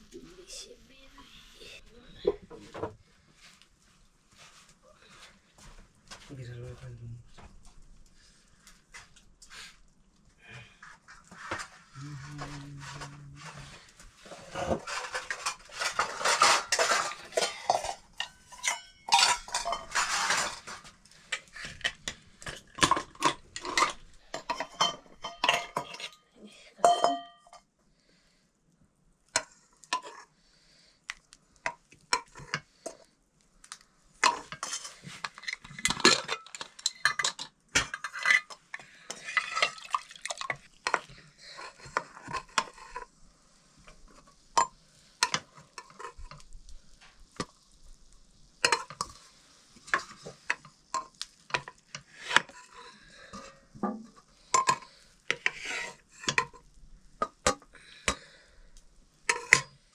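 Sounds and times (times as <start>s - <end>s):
metal spoon clinking on pots: 14.8s - 27.7s, 34.2s - 43.0s, 44.6s - 46.4s, 48.6s - 49.2s, 49.9s - 56.6s, 59.3s - 59.8s.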